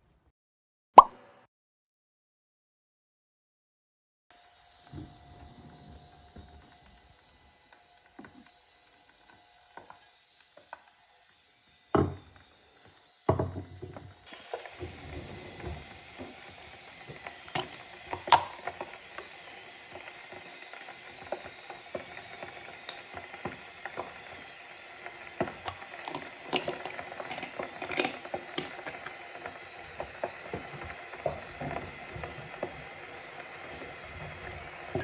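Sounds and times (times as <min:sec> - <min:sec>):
metal spoon clinking in glass jar: 0:22.2 - 0:23.0, 0:24.1 - 0:24.7.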